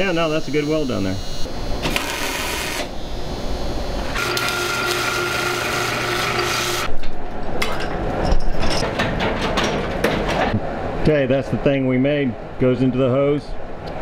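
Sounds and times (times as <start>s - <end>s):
welding buzzing hiss: 0.1s - 6.9s
chain hoist clanking and ratcheting: 8.2s - 10.5s.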